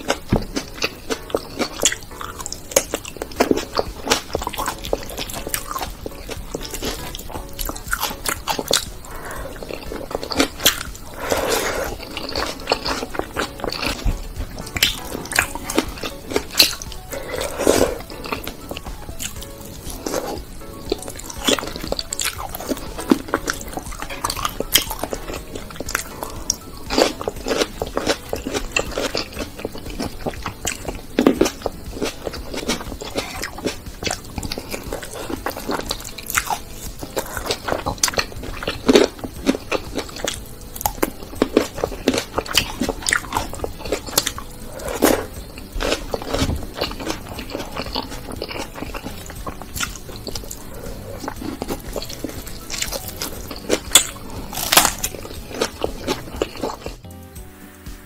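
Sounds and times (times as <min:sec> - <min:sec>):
crunching and chewing: 0:00.0 - 0:57.1.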